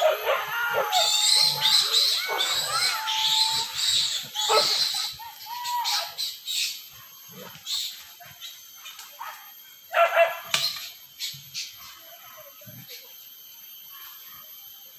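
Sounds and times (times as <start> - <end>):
dogs barking and yelping: 0.0 - 6.2, 8.9 - 10.9.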